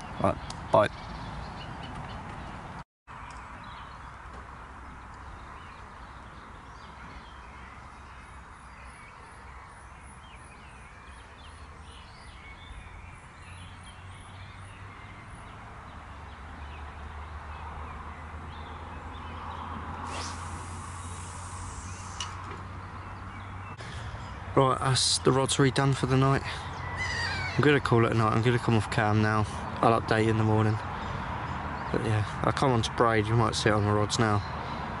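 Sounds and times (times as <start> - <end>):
birds singing: 0.0 - 35.0
traffic rumble: 0.0 - 35.0
brief rushing hiss: 20.0 - 22.5.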